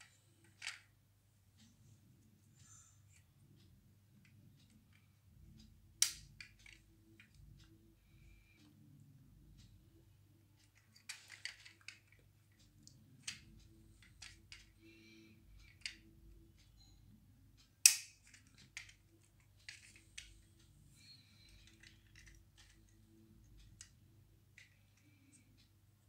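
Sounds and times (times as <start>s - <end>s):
model car clicks and taps: 6.0s - 7.4s, 17.8s - 19.0s.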